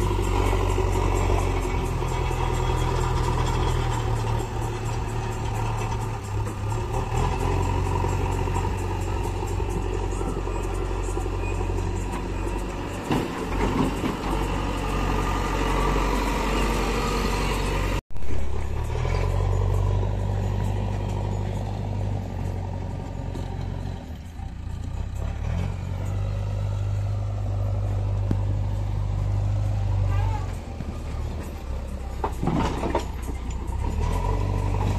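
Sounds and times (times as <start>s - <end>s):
diesel engines humming: 0.0s - 34.9s.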